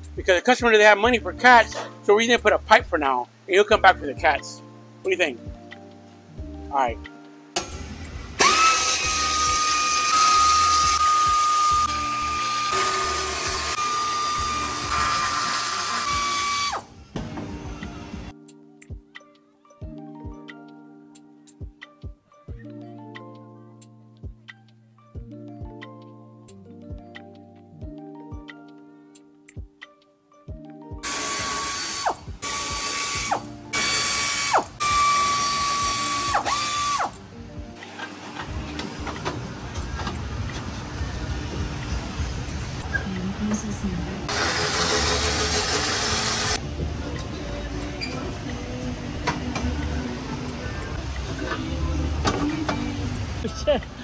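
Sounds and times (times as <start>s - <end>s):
air ratchet whining: 8.4s - 16.9s, 31.0s - 37.2s, 44.3s - 46.6s.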